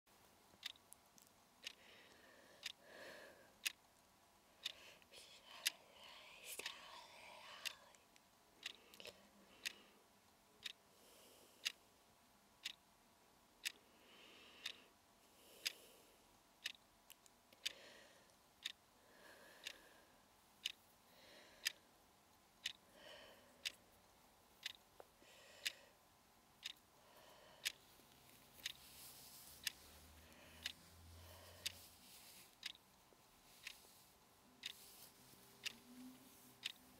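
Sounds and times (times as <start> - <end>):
clock ticking: 0.5 - 2.9, 3.5 - 5.9, 6.6 - 11.0, 11.6 - 15.0, 15.6 - 36.9.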